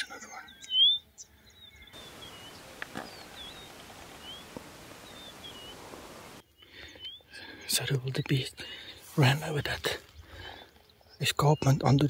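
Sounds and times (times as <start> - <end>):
bird chirps: 0.0 - 8.0
steady hiss: 2.0 - 6.4.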